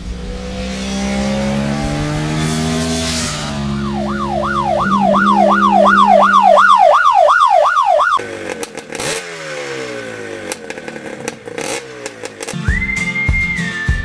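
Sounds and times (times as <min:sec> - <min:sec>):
drone shifting pitch: 0:00.1 - 0:08.2
yelp siren: 0:03.4 - 0:08.2.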